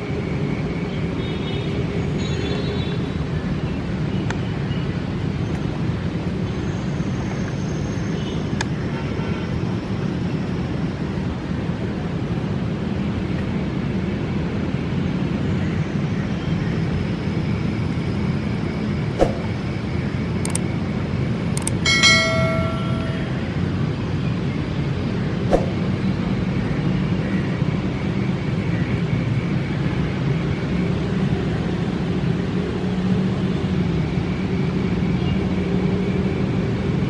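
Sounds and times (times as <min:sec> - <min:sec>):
sharp clicks: 0:20.4 - 0:20.6, 0:21.6 - 0:21.8.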